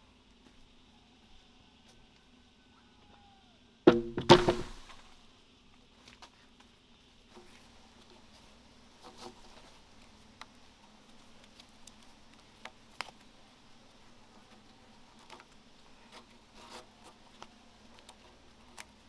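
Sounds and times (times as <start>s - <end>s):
heavy wooden knock: 3.9s - 4.8s
cord rustling and creaking: 7.3s - 19.0s.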